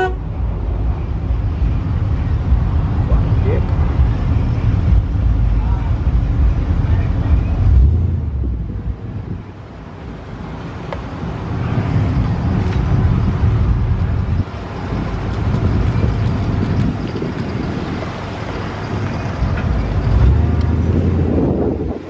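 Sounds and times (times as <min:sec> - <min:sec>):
road and wind noise: 0:00.0 - 0:22.0
truck engines running: 0:00.0 - 0:22.0.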